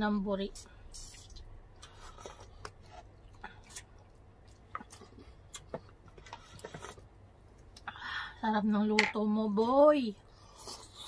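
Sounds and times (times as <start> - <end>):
people chewing and lip-smacking: 1.0 - 7.9.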